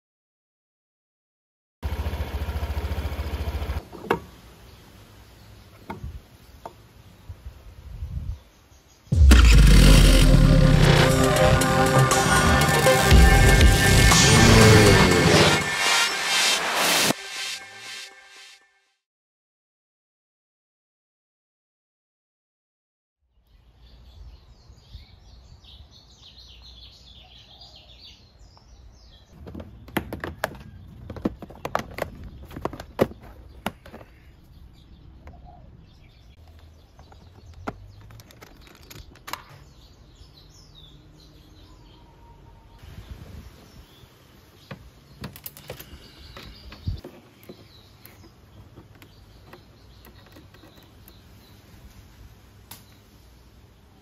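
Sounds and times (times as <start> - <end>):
birds chirping faintly: 23.3 - 54.0
plastic bodywork clicks and knocks: 29.4 - 34.2, 36.4 - 39.6, 44.7 - 51.2.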